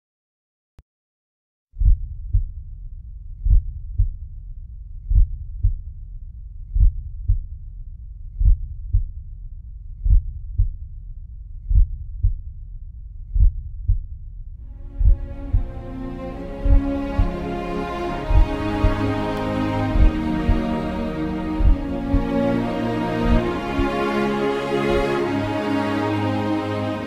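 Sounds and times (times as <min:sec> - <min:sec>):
slow heartbeat: 0:01.8 - 0:04.4, 0:05.0 - 0:06.0, 0:06.6 - 0:07.6, 0:08.3 - 0:09.3, 0:09.9 - 0:11.0, 0:11.6 - 0:12.6, 0:13.2 - 0:24.0
steady low rumble: 0:01.8 - 0:26.3.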